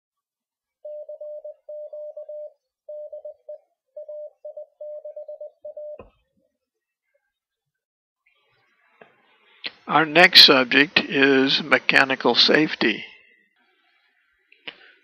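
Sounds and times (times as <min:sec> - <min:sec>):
morse code tone: 0:00.8 - 0:06.1.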